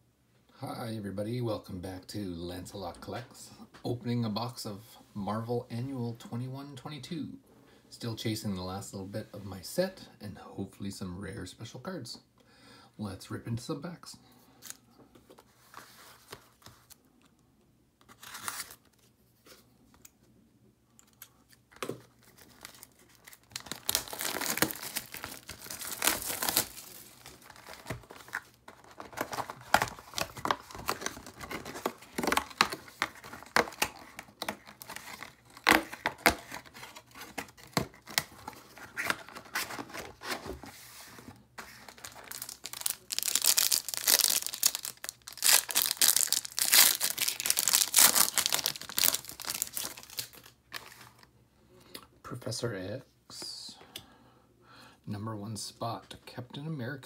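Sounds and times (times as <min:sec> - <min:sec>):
shrink wrap tearing and crinkling: 0:18.1 - 0:19.0, 0:22.2 - 0:40.3, 0:41.8 - 0:51.2
cardboard rustling: 0:21.8 - 0:51.2.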